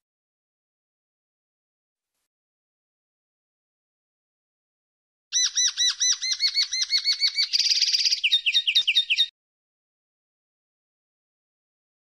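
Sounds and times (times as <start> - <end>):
linnet singing: 5.4 - 9.3.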